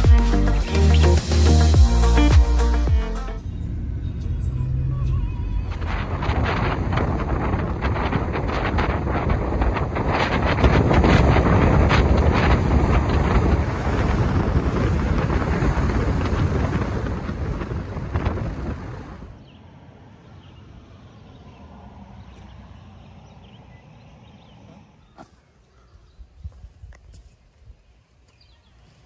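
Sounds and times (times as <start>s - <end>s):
strong wind buffeting microphone: 3.4s - 19.4s.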